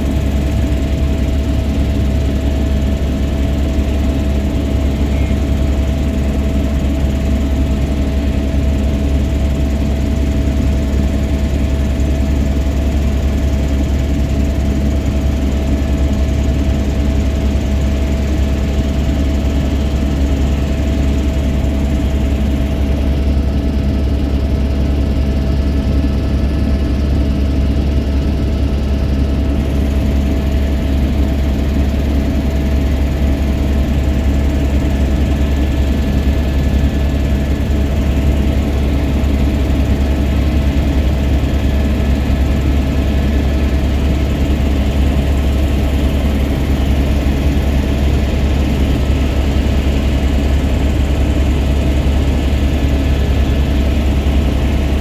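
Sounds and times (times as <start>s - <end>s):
aircraft engine drone: 0.0s - 55.0s
faint steady whine: 2.4s - 8.1s.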